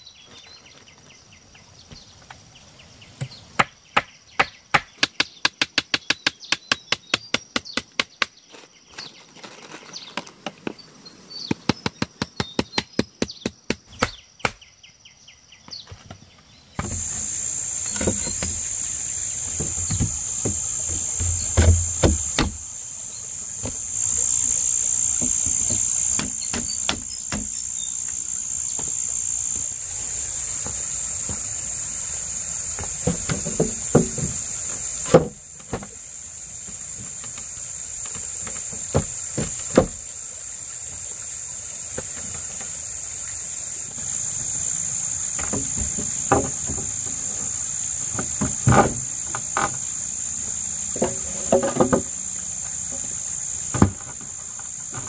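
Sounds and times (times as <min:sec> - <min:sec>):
dull thumps: 0:16.8 - 0:31.6, 0:45.3 - 0:55.0
high-pitched insect buzz: 0:16.8 - 0:35.1, 0:43.2 - 0:55.0
rapid sharp knocks: 0:19.5 - 0:22.6.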